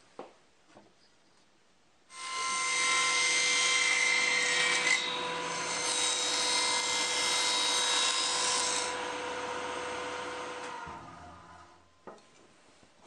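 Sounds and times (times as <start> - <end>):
saw cutting plywood: 2.2 - 11.5
table saw whining: 2.2 - 11.8.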